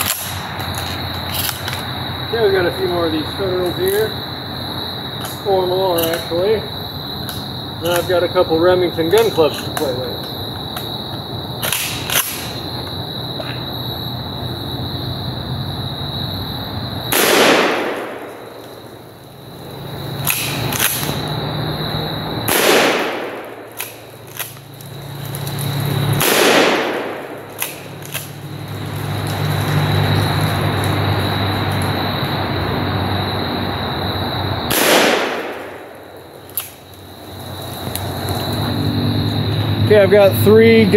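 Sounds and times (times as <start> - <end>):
crickets trilling: 0.0 - 40.9
shotgun shots booming: 17.1 - 18.6, 22.5 - 24.1, 26.2 - 28.0, 34.7 - 36.1.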